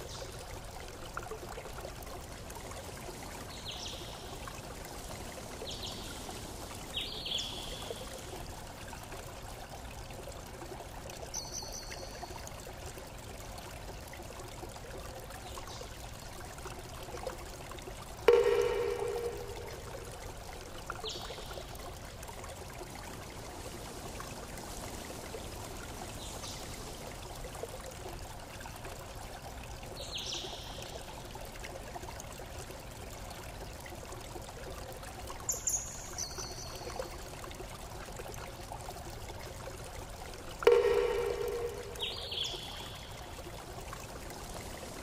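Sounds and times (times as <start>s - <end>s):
running water rushing: 0.0s - 45.0s
loud ringing tone: 18.3s - 19.9s, 40.7s - 42.0s.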